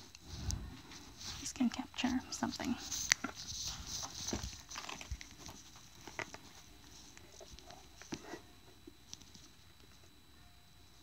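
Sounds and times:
camera handling rustles and clicks: 2.9s - 8.2s.

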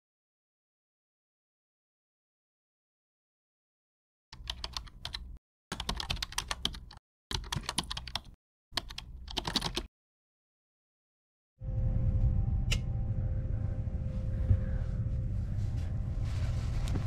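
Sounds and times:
low rumble: 11.6s - 17.0s.

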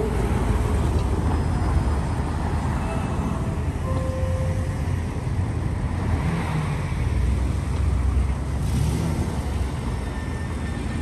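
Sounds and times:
cars driving on street: 0.0s - 11.0s.

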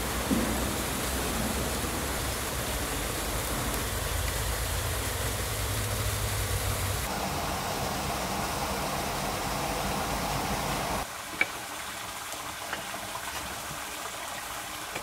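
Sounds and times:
rushing outdoor noise: 0.0s - 11.4s.

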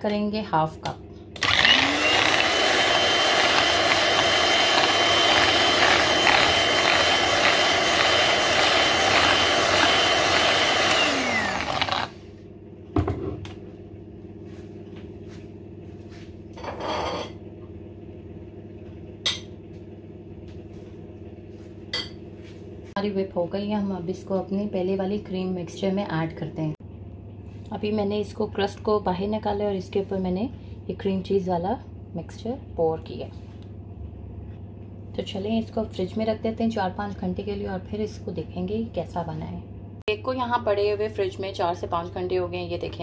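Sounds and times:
electric hand mixer whining: 1.4s - 12.2s.

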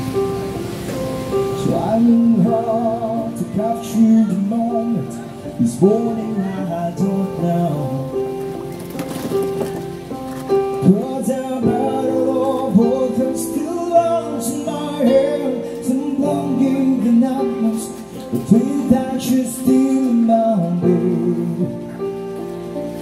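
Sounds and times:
sustained keyboard chords: 0.0s - 23.0s
man singing: 1.6s - 8.4s, 10.8s - 22.1s.

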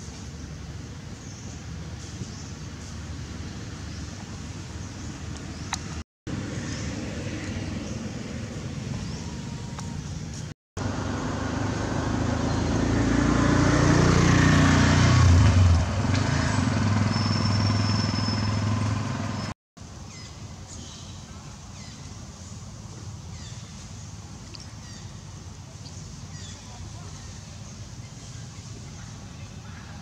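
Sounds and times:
vehicle passing: 10.8s - 19.4s.

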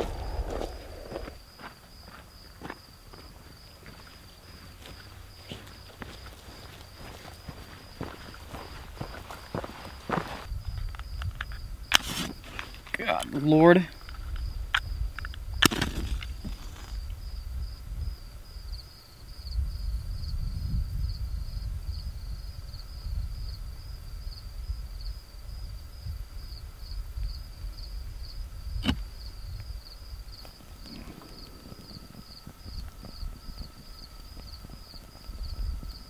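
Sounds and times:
low rumble on microphone: 0.0s - 1.4s, 27.2s - 36.0s
night insects chirping: 0.0s - 36.0s.

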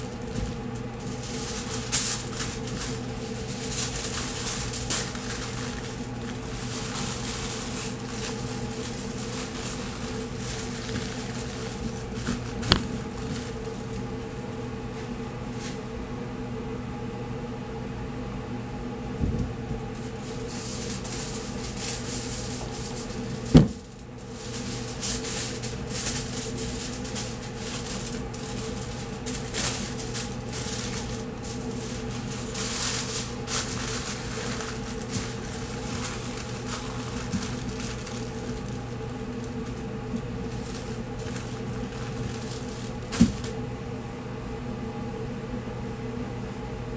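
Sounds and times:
aluminium foil crinkling: 0.0s - 15.8s, 19.9s - 43.6s
electrical hum: 0.0s - 46.9s.

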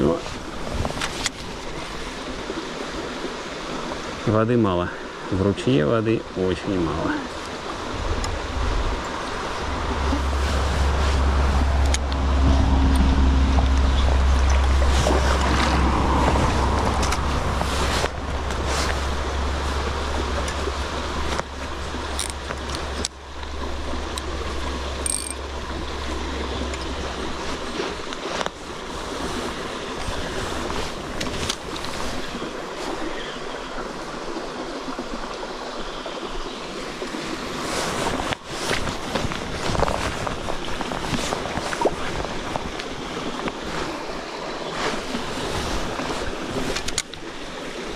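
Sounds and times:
stream running and splashing: 0.0s - 47.9s
deep steady rumble: 7.8s - 31.2s.

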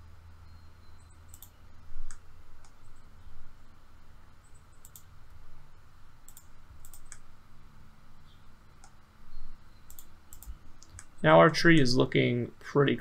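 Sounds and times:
faint low hum: 0.0s - 13.0s
computer mouse buttons clicking: 1.3s - 2.8s, 4.8s - 5.1s, 6.2s - 7.3s, 9.8s - 11.2s.

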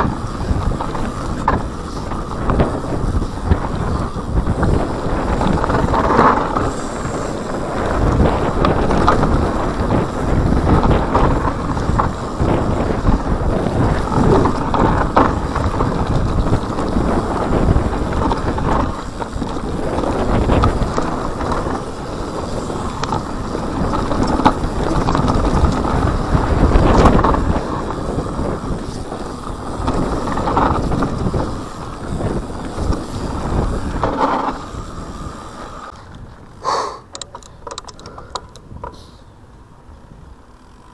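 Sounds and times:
bike knocks and rattles: 0.0s - 39.1s
bike tyres crunching over gravel: 0.0s - 40.9s
wind noise on microphone: 0.0s - 40.9s
sharp clicks: 37.0s - 39.0s.

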